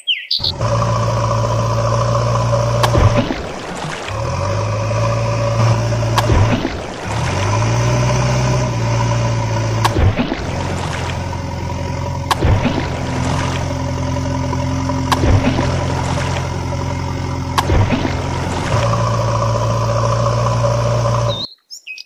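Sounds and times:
bird chirping: 0:00.0 - 0:00.5, 0:21.3 - 0:22.0
machine engine idling: 0:00.4 - 0:21.4.

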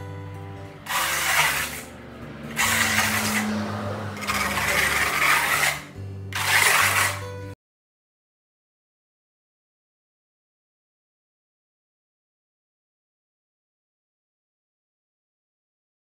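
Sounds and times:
background music low held notes: 0:00.0 - 0:07.6
putty knife scraping concrete: 0:00.8 - 0:07.4.

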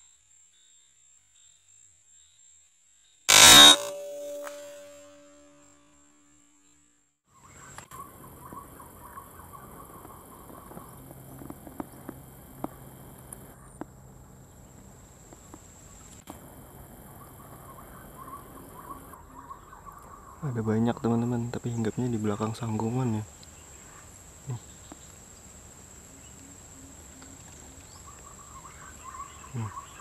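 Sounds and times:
insect chirring: 0:00.0 - 0:06.9, 0:07.8 - 0:19.3, 0:20.4 - 0:30.0
faint ticks: 0:10.0 - 0:13.9, 0:26.2 - 0:28.3.

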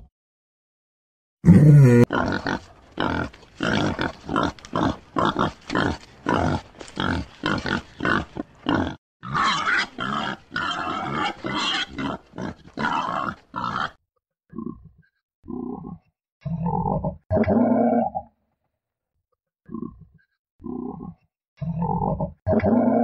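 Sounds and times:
pig grunting: 0:01.4 - 0:14.0.

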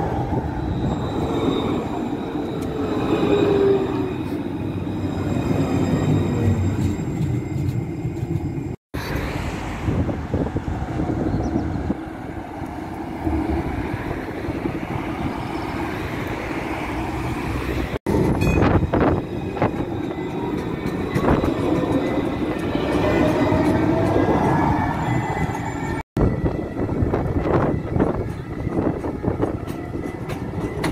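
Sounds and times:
tram rumble on rails: 0:00.0 - 0:30.9.

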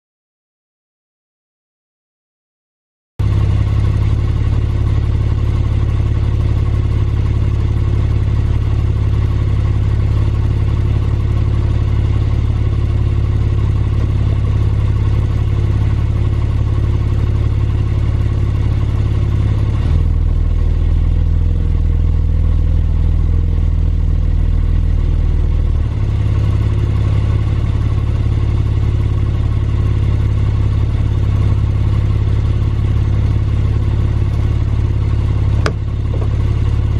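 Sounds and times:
car engine idling: 0:03.2 - 0:36.9.

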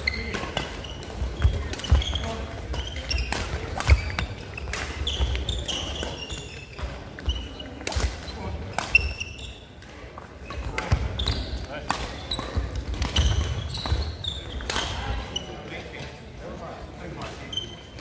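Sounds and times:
sneakers squeaking: 0:00.0 - 0:16.2, 0:17.2 - 0:18.0
racket hitting shuttlecock: 0:00.1 - 0:09.2, 0:11.8 - 0:14.0.

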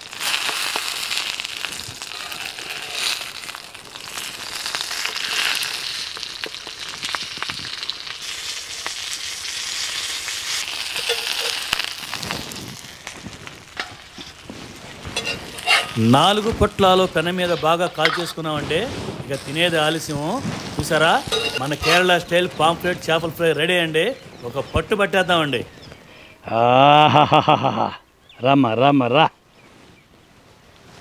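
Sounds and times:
fish sizzling in oil: 0:00.0 - 0:24.6
metal spatula clicks and scrapes: 0:10.9 - 0:11.9, 0:15.2 - 0:16.0, 0:17.5 - 0:18.4, 0:21.2 - 0:22.1.

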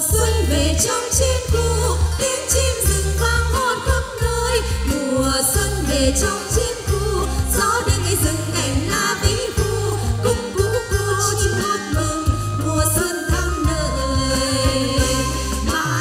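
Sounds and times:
live band playing: 0:00.0 - 0:16.0
woman singing into a microphone: 0:00.0 - 0:16.0.

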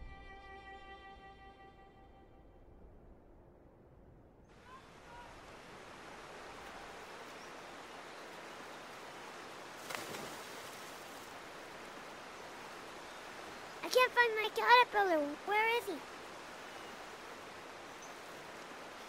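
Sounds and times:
stream water rushing: 0:04.6 - 0:19.0.

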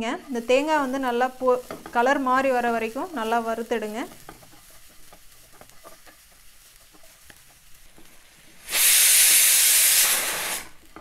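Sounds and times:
wooden spatula scraping a pan: 0:00.0 - 0:08.6
pressure cooker steam hiss: 0:00.3 - 0:11.0.

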